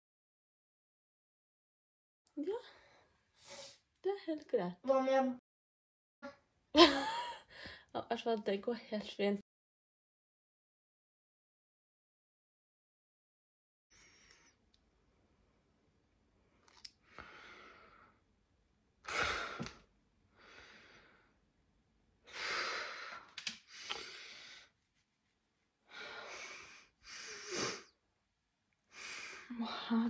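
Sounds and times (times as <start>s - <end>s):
woman breathing heavily and sighing: 7.1s - 8.0s, 19.0s - 21.4s, 25.8s - 28.0s.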